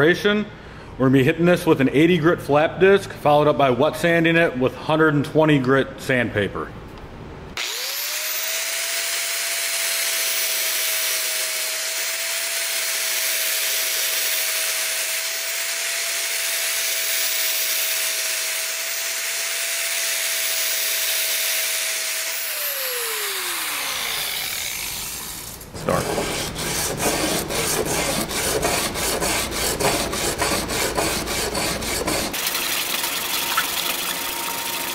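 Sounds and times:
angle grinder grinding steel: 7.6 - 34.9.

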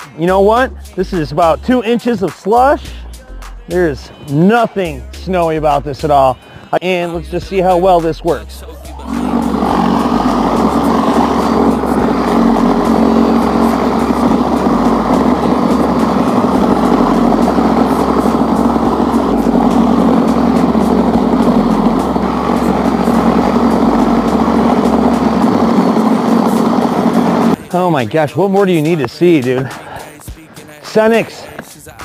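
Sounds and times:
power shovel churning slush: 8.9 - 27.9
faint high whine: 9.0 - 27.6.

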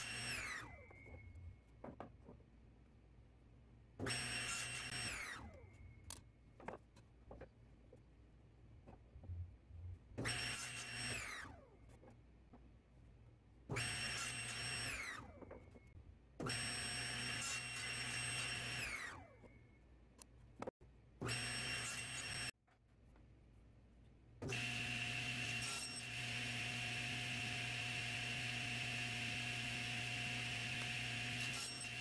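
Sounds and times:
table saw whining: 0.0 - 1.3, 4.0 - 5.6, 13.7 - 15.5, 24.4 - 32.0.

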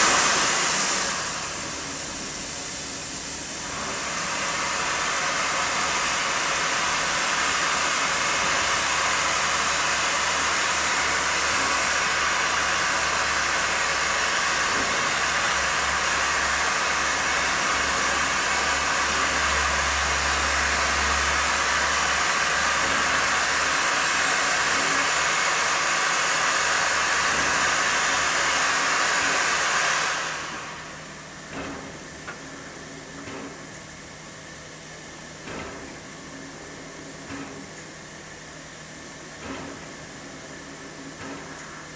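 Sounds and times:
steam hissing from locomotive: 0.0 - 32.6.

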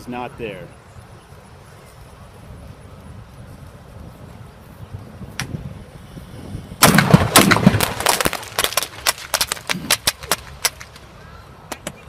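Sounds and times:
firework bangs and crackling: 6.8 - 11.0
sharp firework pops: 6.8 - 11.0.

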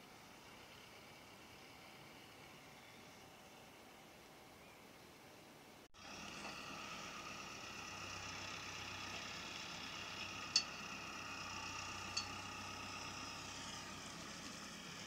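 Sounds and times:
tractor engine whining: 6.0 - 15.0.

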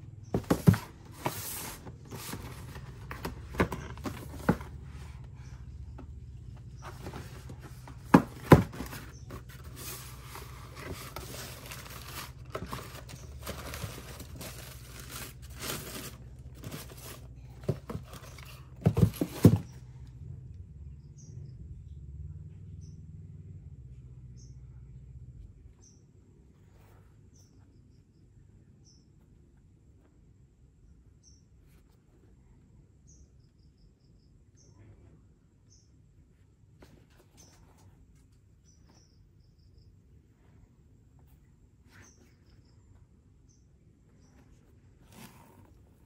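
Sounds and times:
tissue paper rustling: 6.8 - 19.6
cardboard box knocks: 7.1 - 9.6, 17.6 - 19.7.

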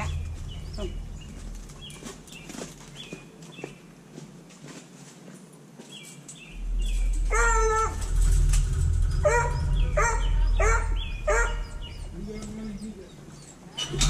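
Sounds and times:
low rumble: 0.0 - 3.1, 6.5 - 13.5
dog whining: 7.3 - 8.0, 9.2 - 12.1.

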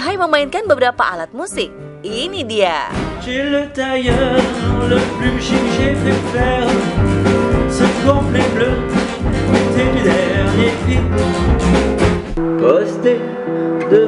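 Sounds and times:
strummed acoustic guitar: 2.9 - 14.0
man singing: 3.0 - 11.8, 12.4 - 14.0.

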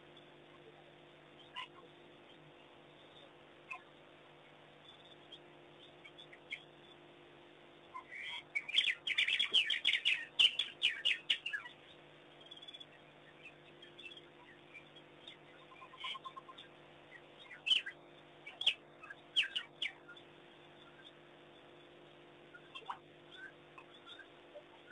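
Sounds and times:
wild dogs twittering: 14.0 - 20.2.

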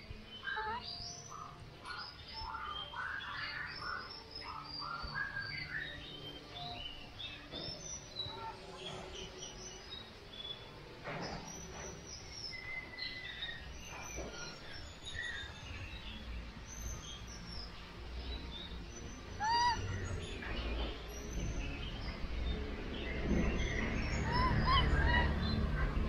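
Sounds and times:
baby monkey chirping squeaks: 0.4 - 1.5, 19.4 - 20.2, 24.2 - 25.6
monkey coo call: 0.4 - 1.6, 19.4 - 20.1, 24.2 - 26.0.

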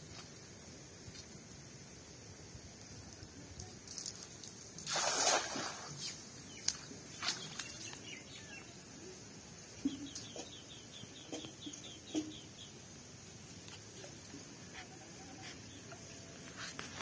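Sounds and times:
cast net splashing into water: 3.9 - 7.8
bird chirping: 6.0 - 9.2, 9.8 - 12.8.

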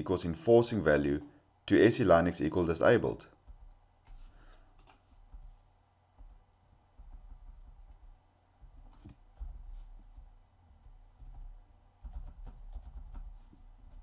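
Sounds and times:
computer keyboard typing: 3.4 - 5.6, 8.8 - 14.0.

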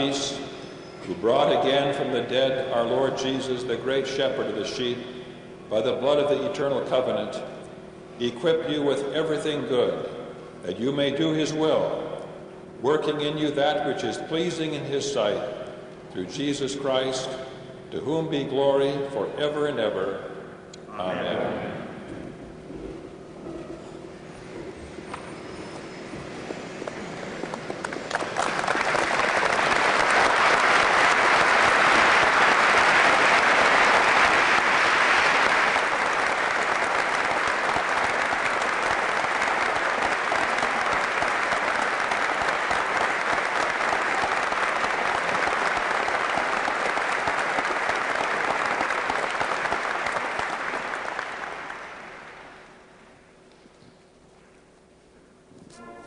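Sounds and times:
crowd applauding: 26.2 - 52.9.

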